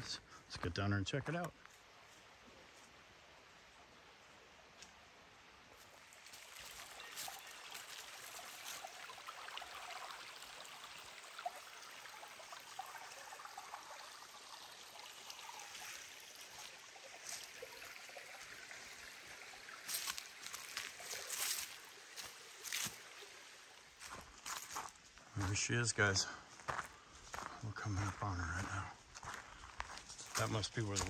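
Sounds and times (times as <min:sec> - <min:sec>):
rustle: 0:01.5 - 0:08.9, 0:19.9 - 0:23.0
river babbling over stones: 0:05.9 - 0:24.1.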